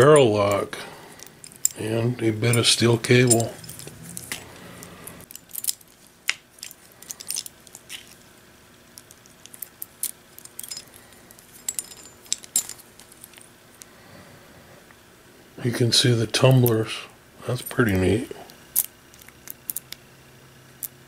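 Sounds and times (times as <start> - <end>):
light metallic clicks and clinks: 0.0 - 6.0, 9.0 - 13.9.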